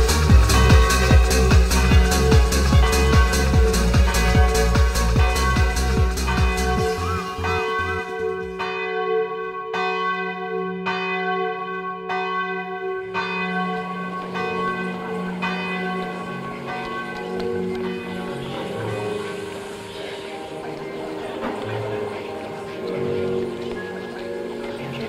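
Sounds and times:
thumping dance beat: 0:00.0 - 0:06.8.

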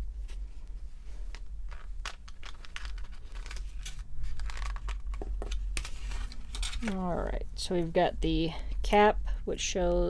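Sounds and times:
plastic tray clicking and crinkling: 0:01.3 - 0:07.0.

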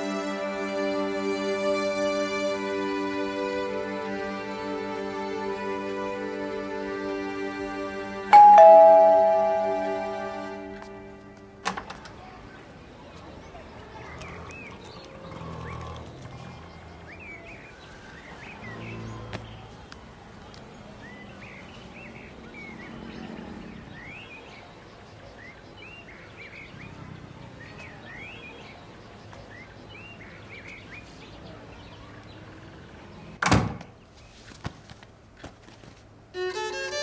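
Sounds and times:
small birds chirping: 0:12.2 - 0:34.4.

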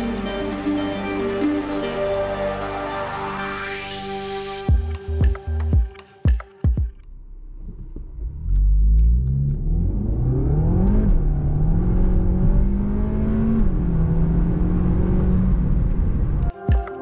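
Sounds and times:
car engine at full throttle: 0:07.4 - 0:16.5.

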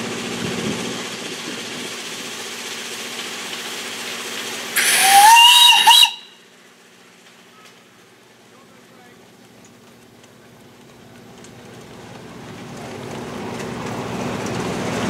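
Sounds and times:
locomotive rumbling: 0:00.0 - 0:15.0
steam hissing: 0:01.0 - 0:06.4
steam locomotive whistle: 0:04.8 - 0:06.5.

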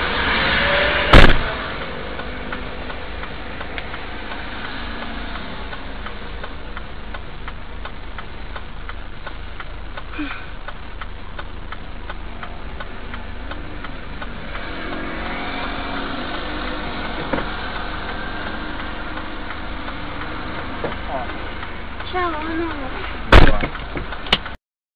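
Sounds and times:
car engine idling: 0:00.0 - 0:24.6
passing traffic: 0:00.0 - 0:24.6
sharp knock: 0:01.1 - 0:01.6, 0:23.3 - 0:24.4
steady clicking: 0:01.2 - 0:24.6.

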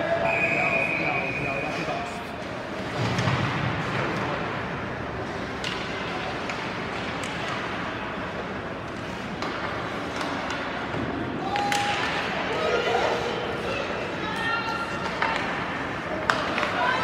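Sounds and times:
clicks of sticks and puck: 0:05.2 - 0:12.4, 0:15.0 - 0:17.0.

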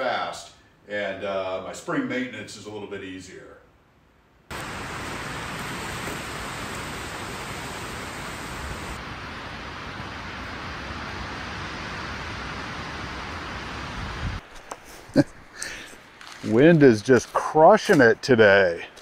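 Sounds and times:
strong wind rushing: 0:10.6 - 0:14.4.

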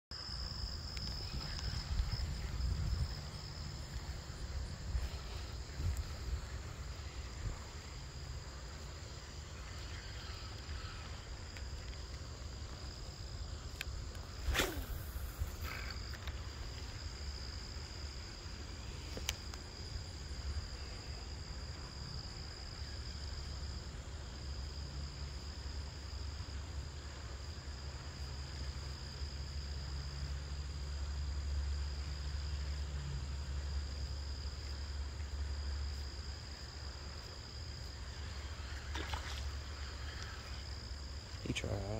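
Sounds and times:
crickets and insects chirring: 0:00.1 - 0:41.9
sharp swish falling in pitch: 0:14.4 - 0:15.7.

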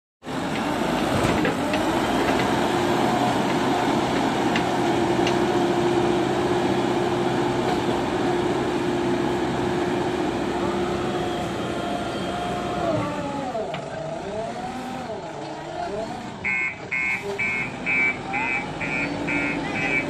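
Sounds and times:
diesel engine running under load: 0:00.2 - 0:20.0
loader bucket pushing into soil: 0:00.4 - 0:05.7.

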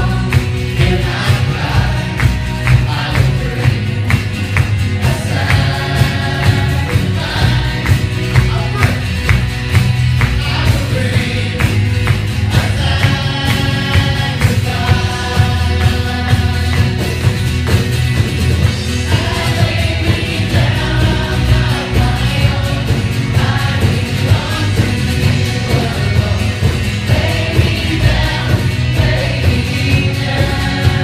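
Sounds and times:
drum kit beat: 0:00.0 - 0:31.0
live band playing: 0:00.0 - 0:31.0
voices singing: 0:00.0 - 0:31.0.

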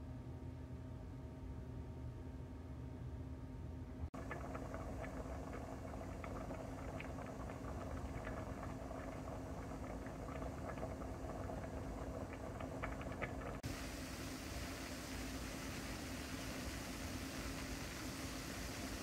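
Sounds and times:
rice boiling and bubbling: 0:04.1 - 0:19.0.

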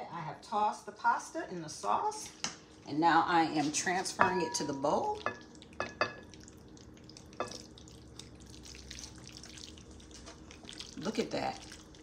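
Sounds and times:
wet squelching of pasta: 0:05.1 - 0:12.0.

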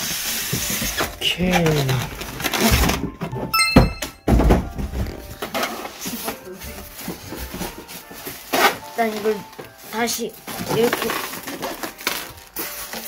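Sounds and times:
styrofoam thumps: 0:04.3 - 0:13.0
packaging rustling: 0:05.9 - 0:13.0.

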